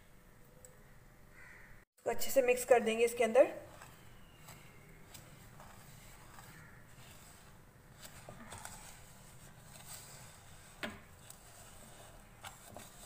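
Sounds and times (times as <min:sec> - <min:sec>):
whisk scraping in bowl: 0:03.6 - 0:13.0.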